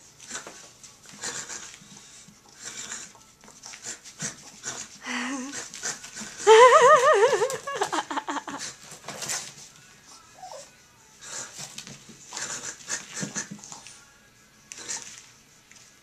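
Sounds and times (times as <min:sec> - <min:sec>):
puppy huffing and scuffling: 0:11.3 - 0:14.0.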